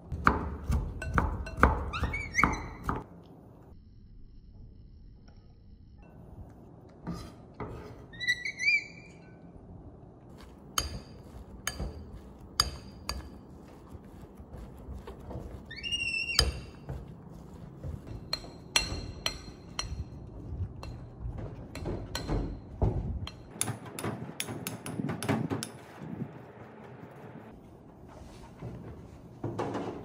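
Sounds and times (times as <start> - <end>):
high rising squeaks: 7.9 - 9.7, 15.6 - 16.9.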